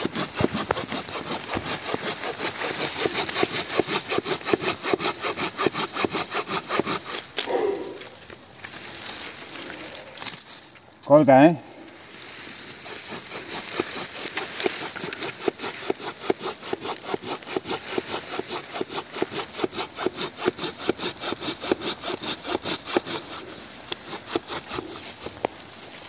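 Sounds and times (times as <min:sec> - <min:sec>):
pull saw cutting log: 0:00.0 - 0:10.3, 0:12.5 - 0:26.0.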